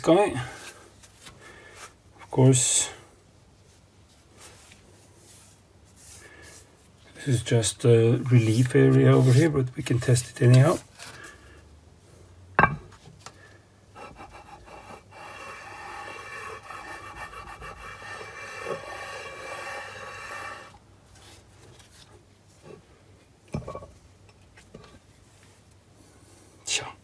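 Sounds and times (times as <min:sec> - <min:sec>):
metal rubbing on metal plate: 0:14.0 - 0:20.8.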